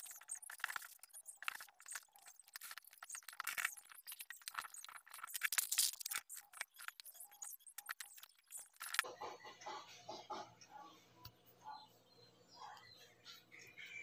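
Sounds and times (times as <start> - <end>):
small hard objects clinking: 0.0 - 9.0.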